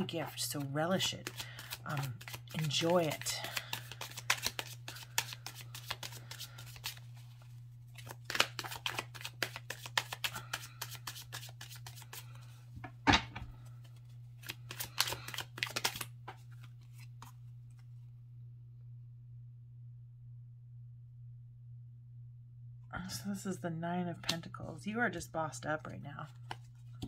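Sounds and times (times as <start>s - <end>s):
cards being shuffled: 0.1s - 18.0s, 26.2s - 27.0s.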